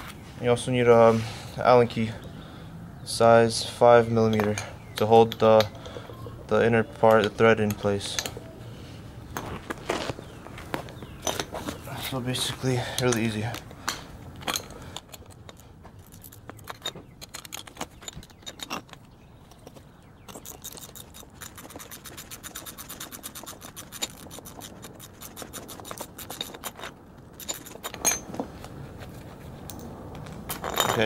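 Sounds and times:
metal clink: 0:25.9 - 0:28.3, 0:30.5 - 0:31.0.

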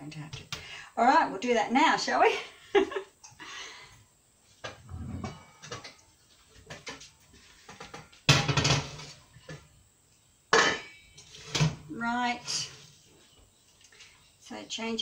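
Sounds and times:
metal pot clanks and knocks: 0:07.7 - 0:09.0.

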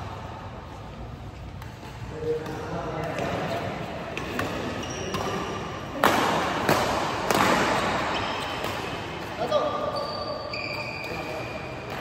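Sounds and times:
racket hitting shuttlecock: 0:01.4 - 0:09.9
shoes squeaking on court floor: 0:04.2 - 0:05.8, 0:07.6 - 0:12.0.

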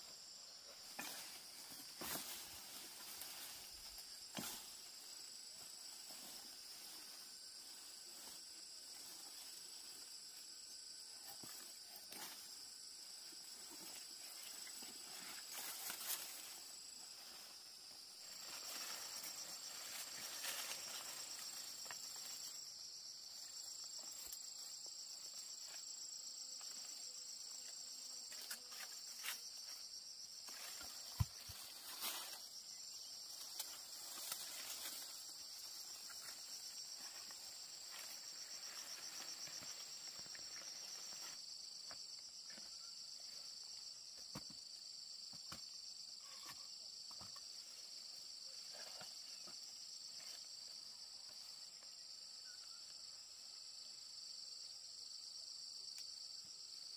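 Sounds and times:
leaves rustling: 0:00.0 - 0:10.6, 0:12.4 - 0:25.2, 0:28.3 - 0:41.5
insects chirring: 0:00.0 - 0:56.9.

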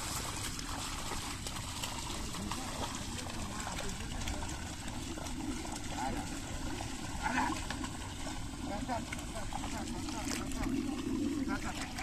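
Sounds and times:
mud and water sloshing: 0:00.0 - 0:12.0.

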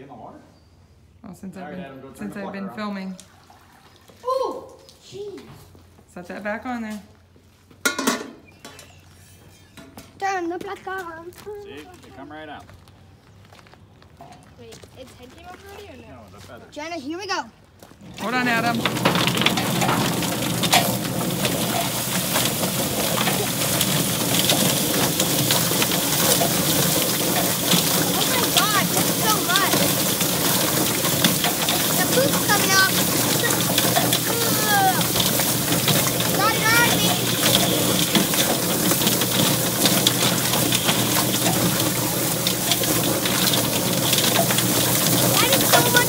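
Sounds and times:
hose water spraying: 0:18.0 - 0:46.0
chicken plucker knocking and slapping: 0:18.2 - 0:46.0.

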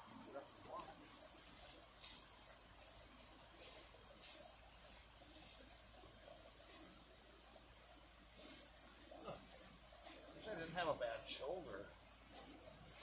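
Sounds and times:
short hissy swishes: 0:05.2 - 0:05.8, 0:08.3 - 0:08.8.

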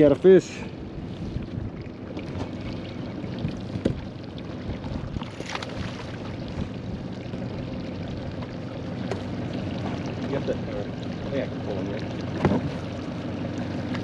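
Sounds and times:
water noise around boat: 0:00.0 - 0:14.0
fish splashing at surface: 0:05.0 - 0:06.7.

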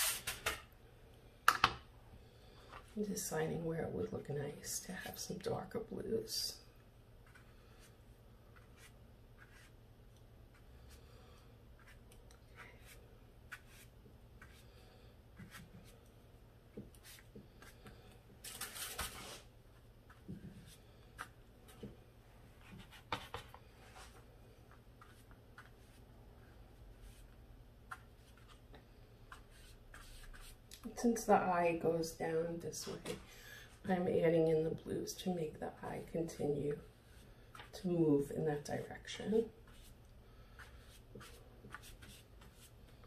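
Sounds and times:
paintbrush brushing on paper: 0:07.2 - 0:09.8, 0:11.8 - 0:14.8, 0:26.9 - 0:28.6, 0:29.3 - 0:30.7, 0:39.6 - 0:43.0.

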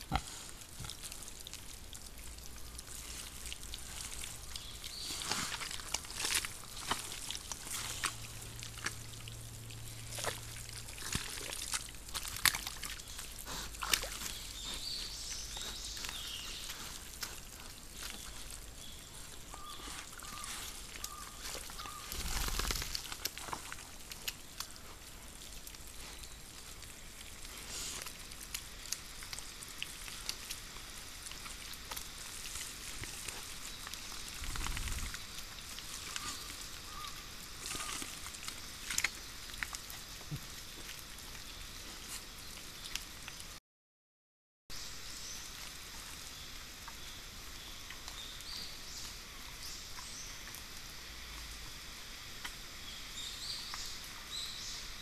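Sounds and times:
mud squelching and splashing: 0:00.0 - 0:43.4.

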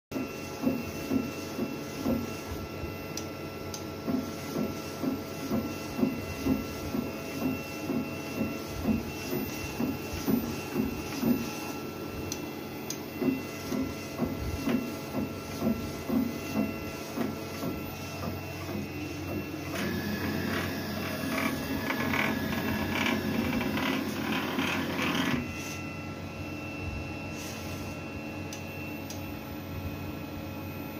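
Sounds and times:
machine hum: 0:00.1 - 0:30.9
loud busy whirring: 0:00.2 - 0:30.9
printer carriage shuttling: 0:19.7 - 0:25.4.

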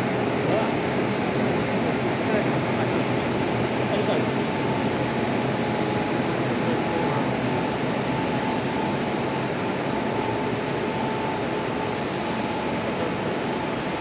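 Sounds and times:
steady whine: 0:00.0 - 0:14.0
train generator drone: 0:00.0 - 0:14.0.

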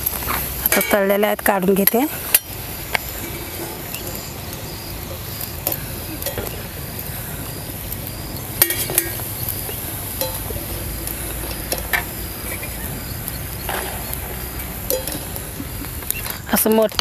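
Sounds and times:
food deep-frying in hot oil: 0:00.0 - 0:17.0
wire skimmer clinking on metal: 0:00.0 - 0:17.0.

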